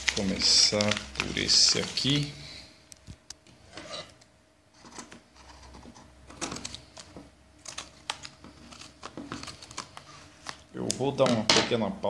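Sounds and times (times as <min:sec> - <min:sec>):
envelope rustling and tapping: 0:00.0 - 0:02.1, 0:06.3 - 0:11.4.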